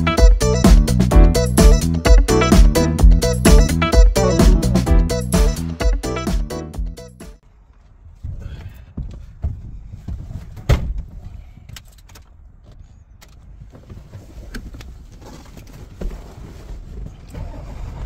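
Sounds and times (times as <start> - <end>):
rustling and knocks in truck cab: 8.2 - 11.7.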